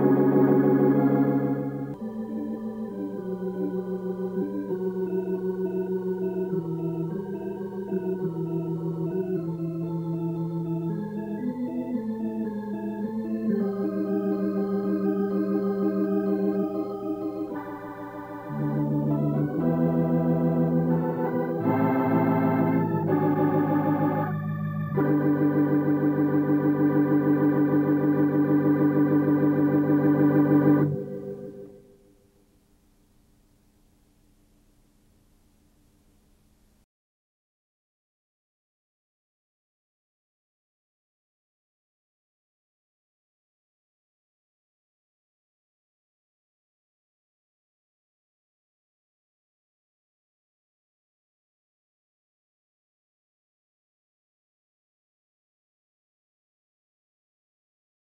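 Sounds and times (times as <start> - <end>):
organ playing sustained chords: 0.0 - 32.1.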